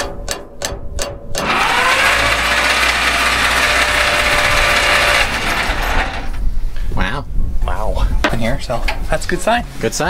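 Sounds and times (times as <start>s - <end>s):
starter motor cranking engine: 1.4s - 6.4s.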